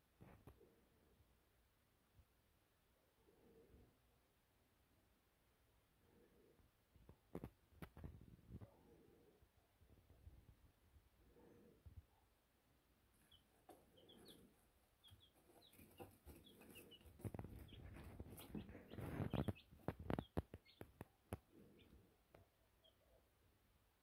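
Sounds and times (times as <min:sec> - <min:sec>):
baby chicks peeping: 0:13.1 - 0:23.2.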